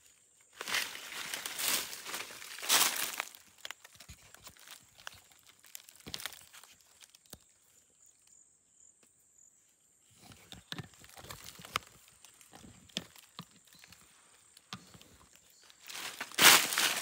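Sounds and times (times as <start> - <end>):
dry leaves crackling and rustling: 0.5 - 7.4, 11.0 - 17.0.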